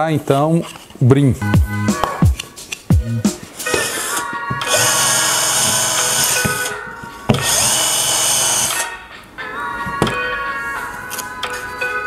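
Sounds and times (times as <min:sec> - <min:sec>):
cordless drill buffing wood: 0:03.8 - 0:06.7, 0:07.3 - 0:08.8.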